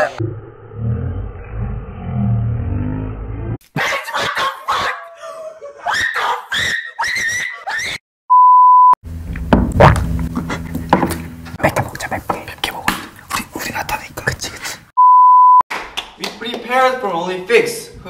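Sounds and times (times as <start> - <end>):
high-pitched squealing cries: 5.8 - 8.0
steady beep tone: 8.3 - 9.0, 15.0 - 15.6
low hum: 9.0 - 12.1.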